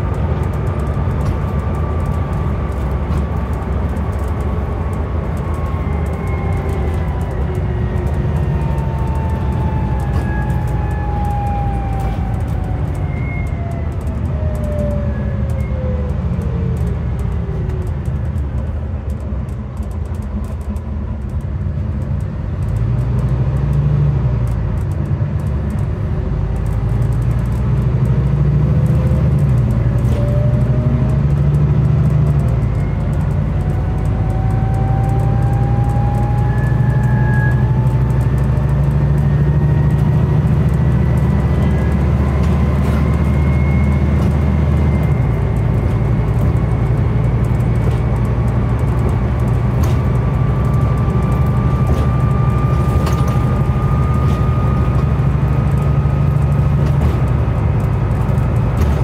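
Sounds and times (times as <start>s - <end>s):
bus diesel engine accelerating: 0.0s - 59.0s
thin whine rising in pitch: 5.3s - 17.5s, 28.6s - 59.0s.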